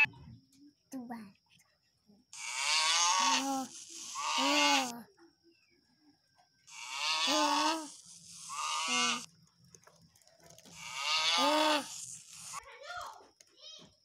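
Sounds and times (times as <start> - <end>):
cow mooing: 6.7 - 7.8, 8.5 - 9.3, 10.8 - 11.9.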